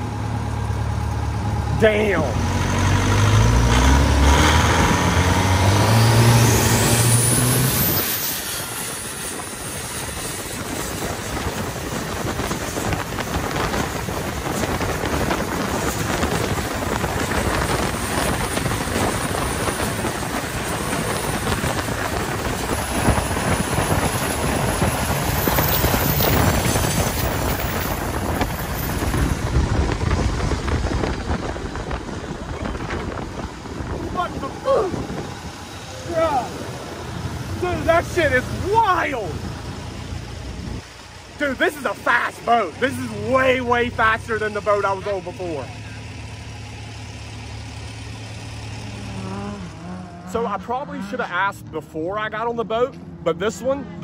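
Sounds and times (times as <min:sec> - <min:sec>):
boat engine whining: 0:00.0 - 0:51.5
wind on microphone: 0:06.4 - 0:35.9.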